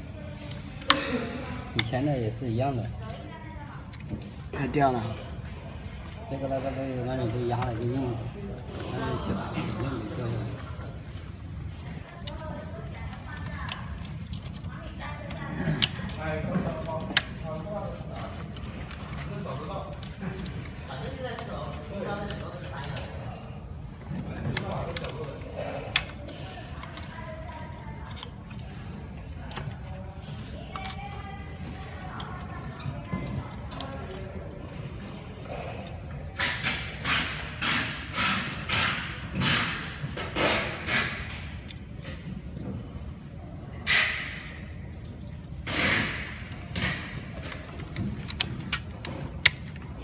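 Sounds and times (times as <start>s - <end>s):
plastic parts rustling: 8.7s - 35.3s
plastic connectors clicking: 12.2s - 21.5s, 24.5s - 29.9s, 30.6s - 31.3s, 43.8s - 49.9s.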